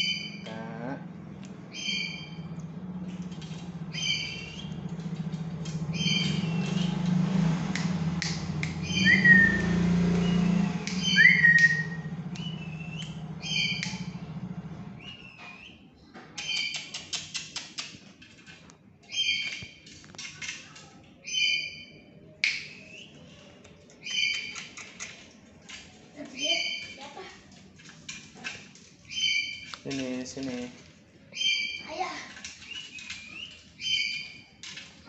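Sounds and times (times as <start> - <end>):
low steady hum: 0.0 - 16.1
parrot squawking: 1.7 - 2.5, 3.9 - 4.8, 5.9 - 7.0, 8.8 - 14.2, 26.3 - 27.1, 29.1 - 29.7, 31.4 - 32.1
sharp gliding bird notes: 5.6 - 15.8.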